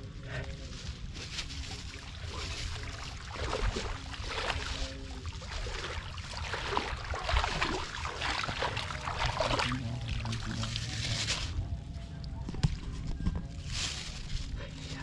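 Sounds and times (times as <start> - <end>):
muddy water splashing: 1.2 - 11.6.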